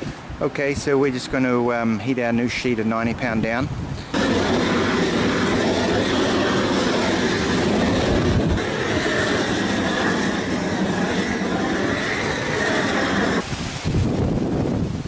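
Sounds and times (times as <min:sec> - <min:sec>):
torch flame rushing: 0:04.1 - 0:14.1.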